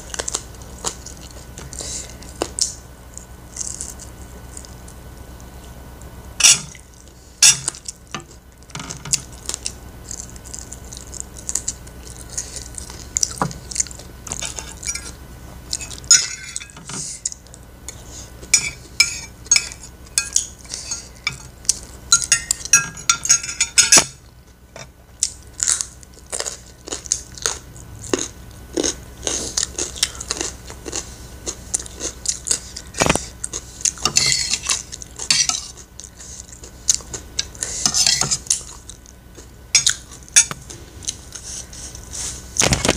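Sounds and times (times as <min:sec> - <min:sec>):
close-up chewing: 0:00.0 - 0:05.8, 0:06.7 - 0:16.2, 0:25.0 - 0:42.9
spoon and fork scraping a plate: 0:06.4 - 0:06.8, 0:14.3 - 0:15.1, 0:15.8 - 0:17.3, 0:18.5 - 0:21.5, 0:22.2 - 0:24.2, 0:34.0 - 0:35.8, 0:37.7 - 0:38.4.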